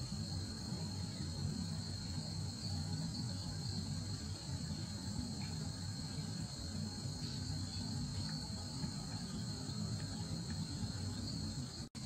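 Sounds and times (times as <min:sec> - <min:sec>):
insects trilling: 0:00.0 - 0:12.0.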